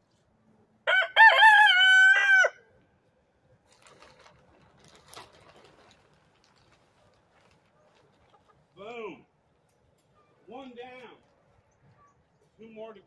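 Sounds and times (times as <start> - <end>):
rooster crowing: 0.8 - 2.6.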